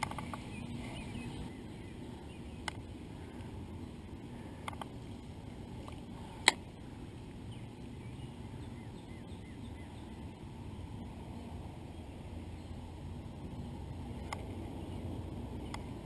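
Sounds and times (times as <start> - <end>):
faint bird calls: 0.0 - 5.0
low outdoor rumble: 0.0 - 16.0.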